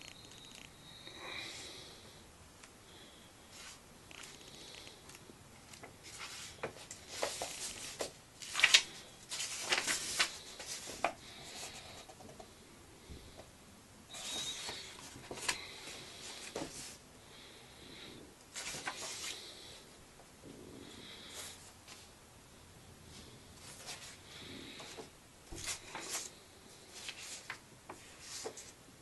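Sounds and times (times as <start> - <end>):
book pages turning: 3.5 - 12.0, 14.2 - 17.0, 18.6 - 19.4, 24.9 - 28.8.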